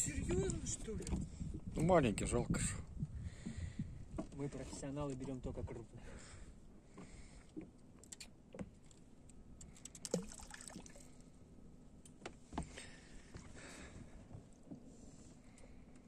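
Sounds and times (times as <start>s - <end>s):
soft water noise: 0.7s - 12.0s
faint steady hum: 5.8s - 16.0s
fishing tackle clicks and knocks: 9.6s - 10.4s.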